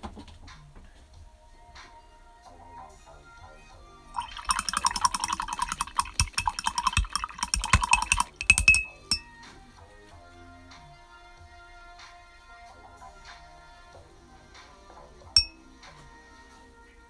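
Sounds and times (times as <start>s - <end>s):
paintbrush clinking in glass jar: 4.2s - 9.3s, 15.4s - 15.6s.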